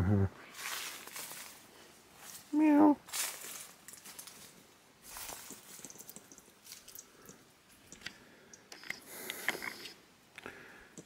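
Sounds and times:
leaves and twigs rustling: 0.4s - 8.0s.

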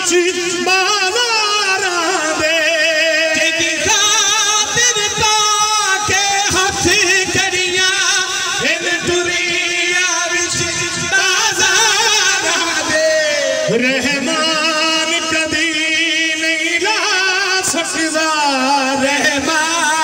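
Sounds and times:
man chanting through loudspeakers: 0.0s - 20.0s.

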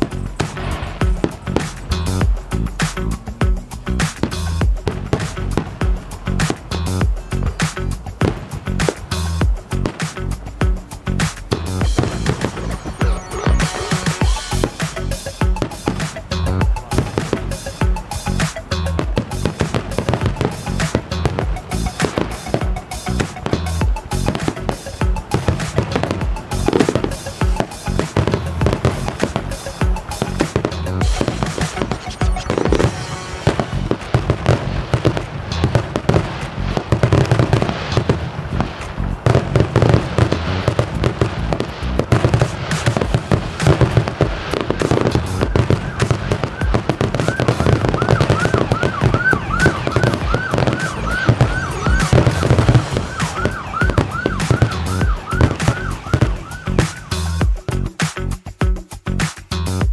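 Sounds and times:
music with heavy beat: 0.0s - 59.9s
high wailing sound: 11.9s - 15.1s, 44.8s - 57.4s.

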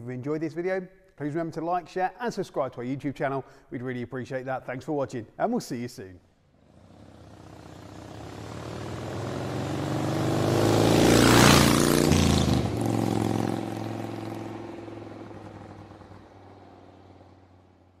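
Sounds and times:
vehicle engine passing by: 6.6s - 18.0s.

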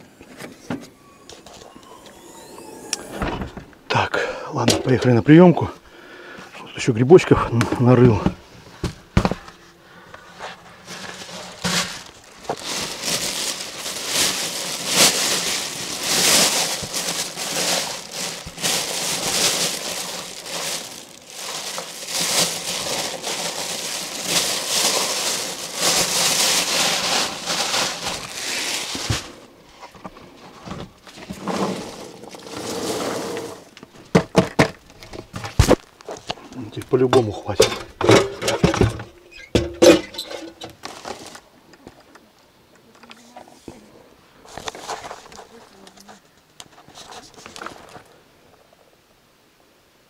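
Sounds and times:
handling noise: 7.3s - 42.1s
plastic bag crinkling: 10.3s - 29.6s, 31.0s - 34.0s.

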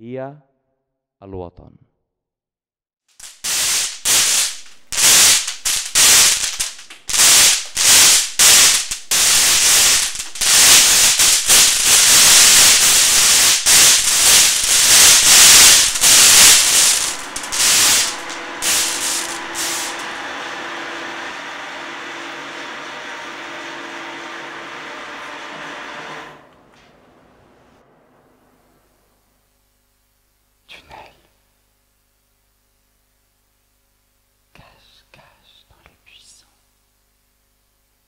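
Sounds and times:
bursts of hissing noise: 3.2s - 25.4s
steady low hum: 3.3s - 29.7s.

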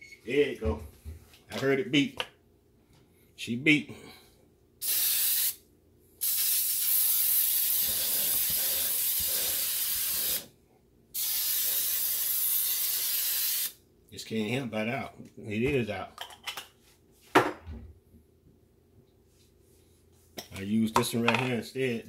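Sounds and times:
aerosol spray hissing: 4.8s - 5.6s, 6.2s - 10.5s, 11.2s - 13.7s.

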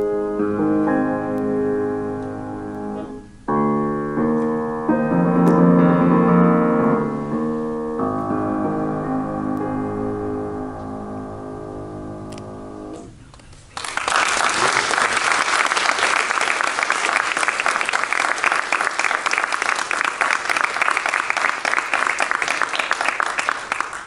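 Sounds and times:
grand piano chord: 0.0s - 13.2s
audience applauding: 13.3s - 24.0s.

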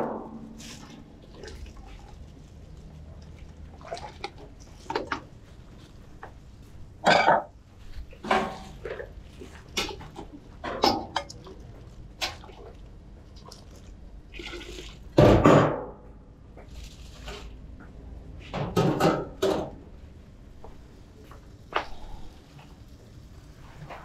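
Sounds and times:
liquid pouring and splashing: 0.5s - 5.2s, 11.3s - 15.2s.

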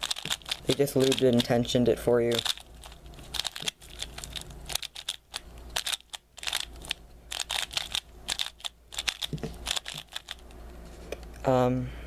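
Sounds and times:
puzzle cube layers clacking: 0.0s - 10.5s.

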